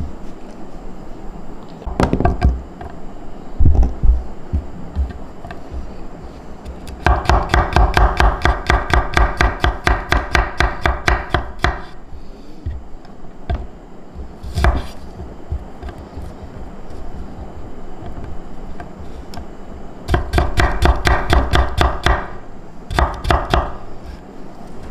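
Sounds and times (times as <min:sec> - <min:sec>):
knife chopping on cutting board: 0:06.7 - 0:11.9, 0:14.4 - 0:16.4, 0:20.1 - 0:22.3, 0:22.9 - 0:23.8.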